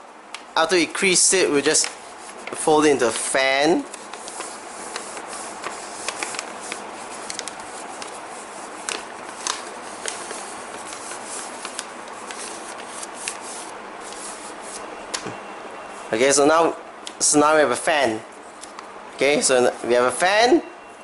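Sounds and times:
steady low hiss: 0:00.0 - 0:20.8
paper crinkling and rustling: 0:01.7 - 0:15.2.

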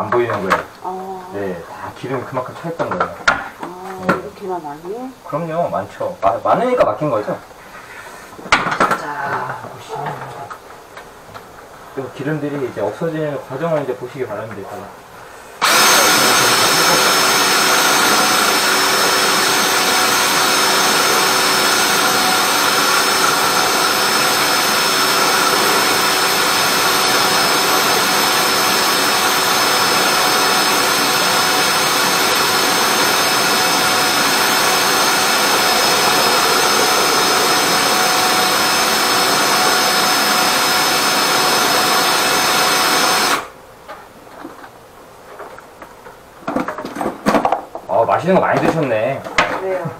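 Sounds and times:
drain-cleaning machine hissing: 0:15.4 - 0:43.6.

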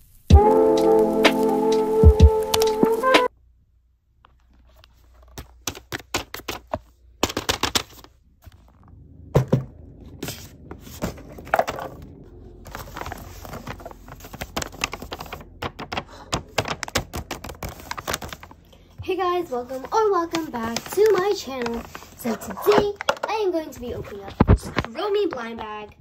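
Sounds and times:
paper crinkling and rustling: 0:04.3 - 0:08.9, 0:10.0 - 0:26.0.

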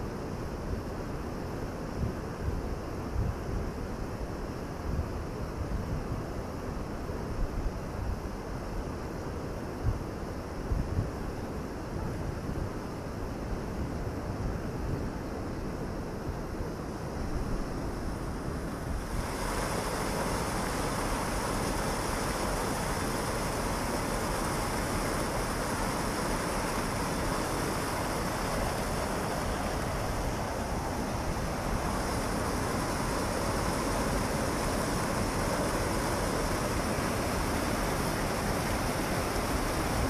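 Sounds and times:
water rushing through weir gates: 0:19.0 - 0:40.0.

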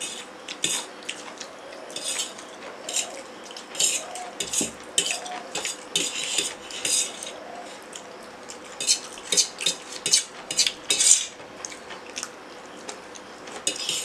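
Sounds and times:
fork scraping steel plate: 0:00.0 - 0:00.9, 0:01.9 - 0:03.2, 0:03.8 - 0:08.0, 0:08.8 - 0:11.4, 0:13.7 - 0:14.0.

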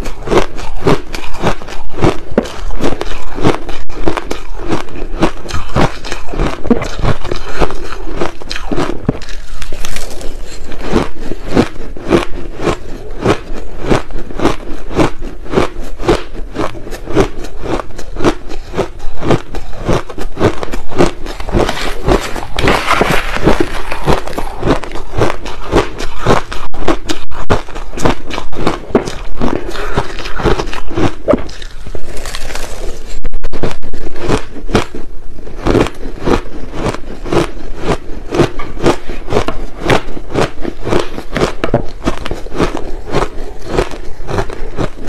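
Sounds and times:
chewing crushed ice: 0:00.0 - 0:45.0.

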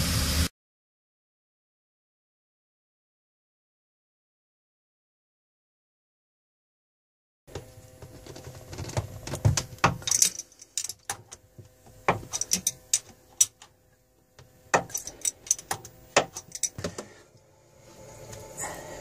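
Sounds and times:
hand tool clicking on metal: 0:12.1 - 0:13.7, 0:14.8 - 0:17.0.

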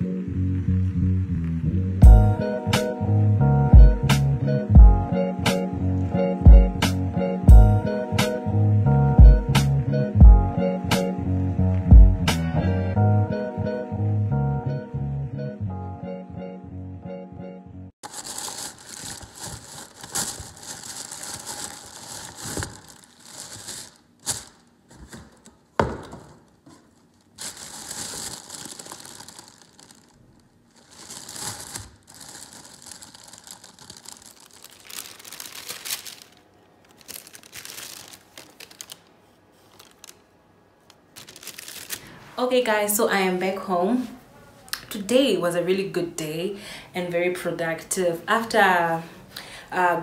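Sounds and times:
paper and plastic rustling: 0:18.0 - 0:40.3, 0:40.9 - 0:42.4.

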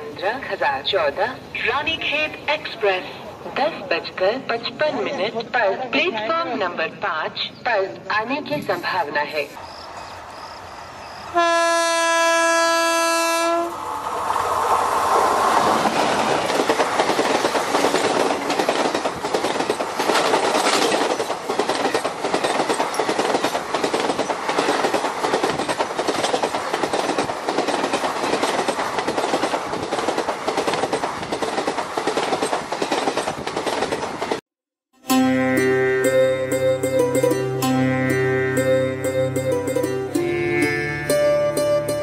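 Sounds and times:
train rushing past: 0:09.6 - 0:34.4.

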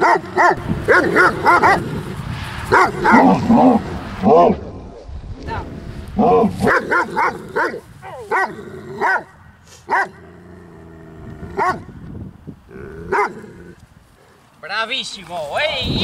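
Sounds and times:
dog barking aggressively: 0:00.0 - 0:02.1, 0:02.7 - 0:03.8, 0:06.2 - 0:10.2, 0:11.5 - 0:11.9, 0:13.1 - 0:13.5.

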